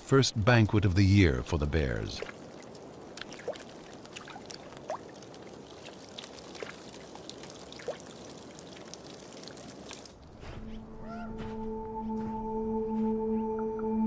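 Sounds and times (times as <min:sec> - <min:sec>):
shallow water trickling: 0:01.8 - 0:10.5.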